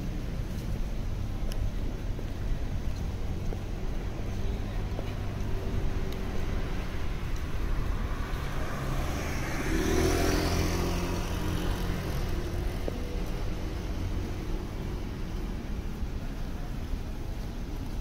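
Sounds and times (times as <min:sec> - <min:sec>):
city traffic hum: 0:00.0 - 0:18.0
vehicle passing close: 0:04.2 - 0:15.9.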